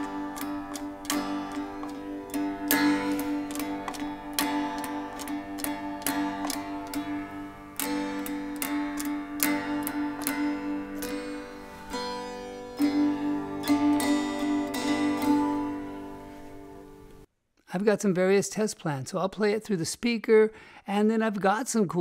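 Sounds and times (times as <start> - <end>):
guitar strumming open chord: 0.0 - 17.3.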